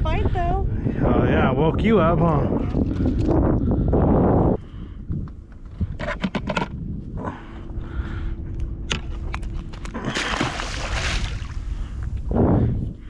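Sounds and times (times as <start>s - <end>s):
stingray splashing in water: 10.0s - 11.7s.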